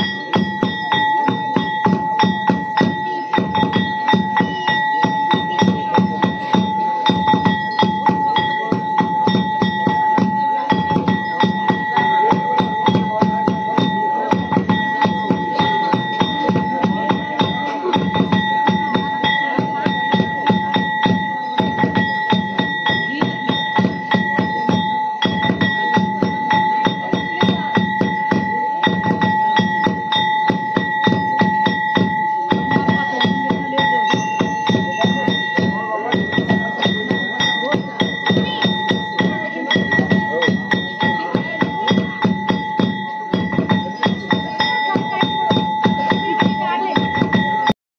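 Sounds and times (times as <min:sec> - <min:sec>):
fast drumming: 0:00.0 - 0:47.8
high metallic ringing: 0:00.0 - 0:47.8.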